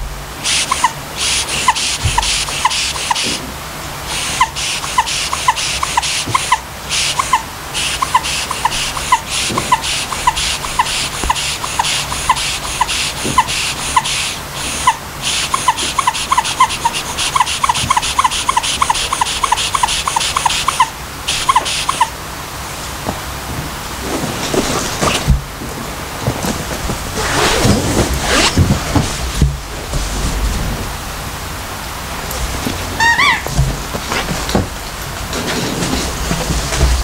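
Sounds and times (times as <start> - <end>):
rhythmic hiss: 0.0 - 37.0
squeaky dog toy squeaking: 14.8 - 22.1, 33.0 - 33.5.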